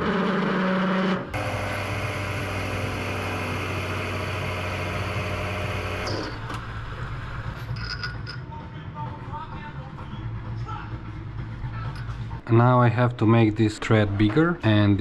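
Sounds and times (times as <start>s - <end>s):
lathe motor humming: 0.0s - 7.4s.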